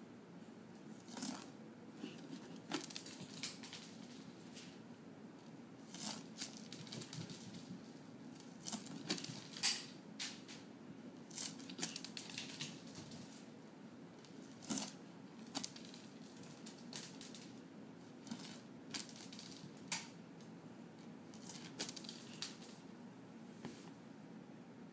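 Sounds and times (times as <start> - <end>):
kibble skittering across tile: 0.9 - 4.8, 5.8 - 10.6, 11.2 - 13.5, 14.2 - 20.2, 21.3 - 22.8.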